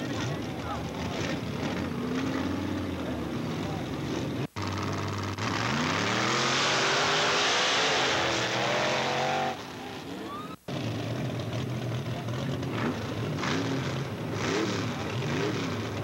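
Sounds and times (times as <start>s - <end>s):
engine revving hard: 4.6s - 9.6s, 12.8s - 16.0s.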